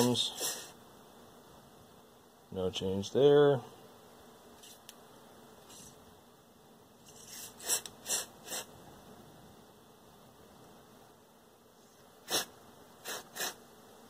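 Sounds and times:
aerosol spray hissing: 0:00.0 - 0:00.8, 0:05.7 - 0:06.0, 0:07.0 - 0:08.7, 0:12.2 - 0:13.6.

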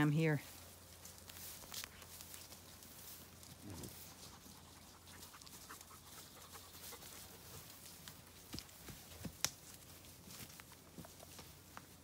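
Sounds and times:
rustling ticks: 0:00.6 - 0:12.0
sheep breathing and sniffing: 0:03.3 - 0:07.8.

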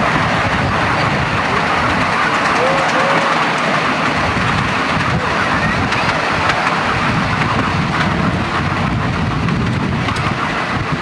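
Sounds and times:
miniature train rumbling on track: 0:00.0 - 0:11.0.

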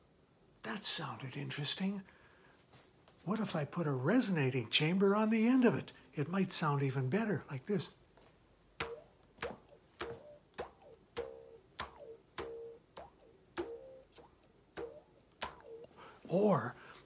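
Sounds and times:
mouth bow string twangs: 0:08.8 - 0:16.0.

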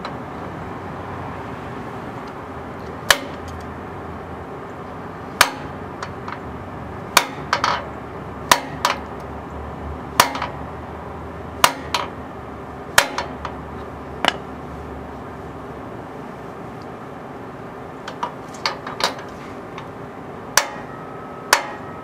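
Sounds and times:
hammer striking metal: 0:03.1 - 0:03.4, 0:05.4 - 0:05.7, 0:07.2 - 0:07.8, 0:08.5 - 0:09.0, 0:10.2 - 0:10.6, 0:11.6 - 0:12.1, 0:13.0 - 0:13.4, 0:20.5 - 0:22.0.

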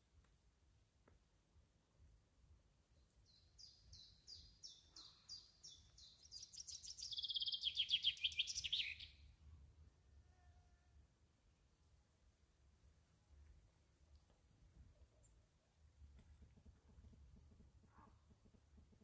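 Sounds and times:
songbird singing trill: 0:03.0 - 0:09.2.

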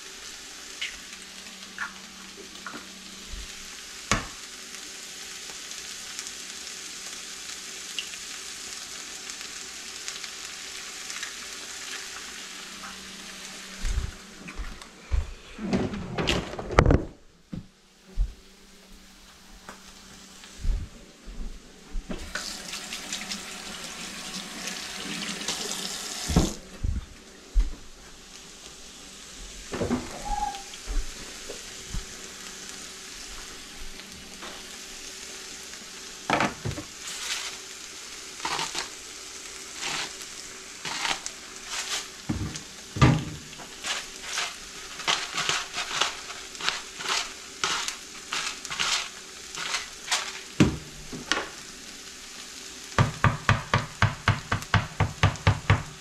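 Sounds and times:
eggs and potatoes sizzling: 0:00.0 - 0:14.9, 0:22.2 - 0:26.6, 0:28.0 - 0:56.0
faucet running over hands: 0:22.3 - 0:26.6.

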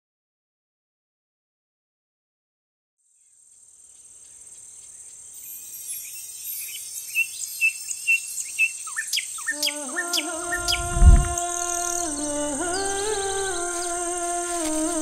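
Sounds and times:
insects chirring: 0:03.0 - 0:15.0.

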